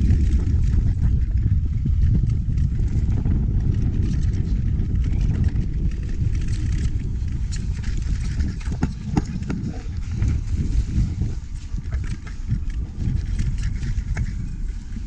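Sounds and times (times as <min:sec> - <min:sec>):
bike rattling over bumps: 0:00.0 - 0:15.0
wind rumbling on microphone: 0:00.0 - 0:15.0.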